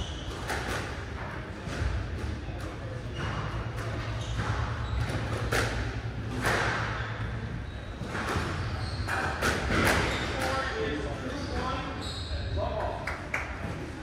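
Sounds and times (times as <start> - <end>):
squash ball hitting rackets and walls: 0.0 - 10.7
low hum of hall: 0.0 - 14.0.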